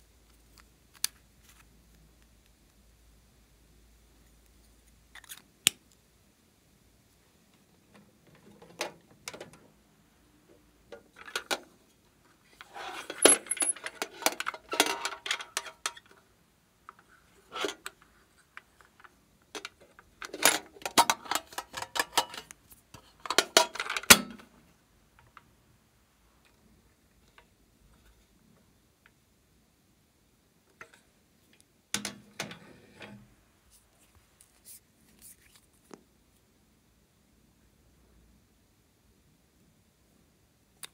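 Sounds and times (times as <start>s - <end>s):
metal pencil case clattering: 12.6s - 16.0s.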